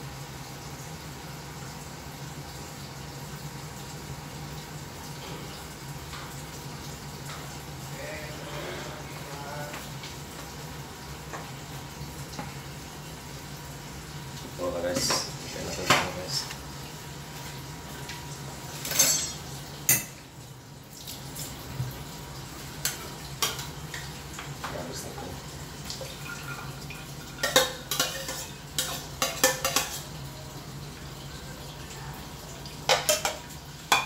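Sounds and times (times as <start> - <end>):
cookware and utensils clinking: 14.8 - 16.5, 18.7 - 20.2, 22.8 - 25.0, 26.0 - 30.4, 32.8 - 34.0.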